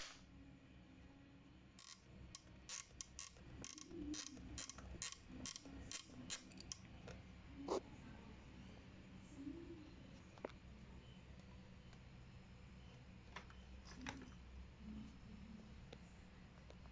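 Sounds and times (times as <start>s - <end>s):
small plastic dial clicks: 1.8s - 6.9s.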